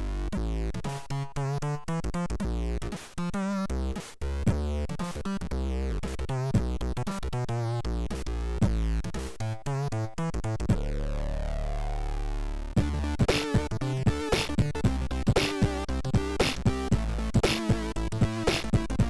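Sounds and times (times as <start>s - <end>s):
chiptune game music: 12.8s - 19.0s.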